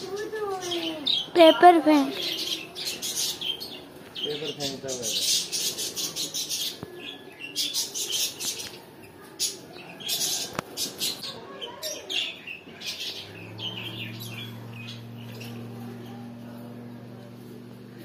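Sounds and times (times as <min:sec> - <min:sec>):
small birds chirping: 0:00.0 - 0:18.0
low steady hum: 0:12.9 - 0:18.0.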